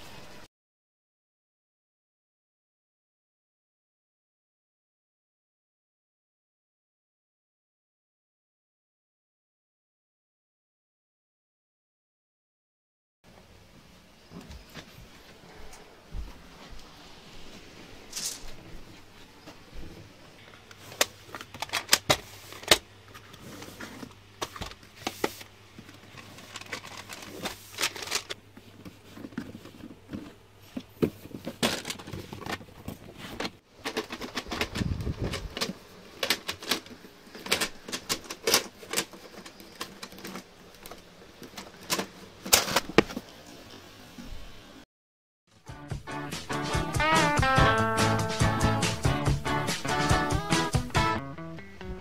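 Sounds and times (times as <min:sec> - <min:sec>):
plastic cassette cases clattering: 0:21.0 - 0:22.9, 0:25.9 - 0:28.4, 0:31.1 - 0:43.0.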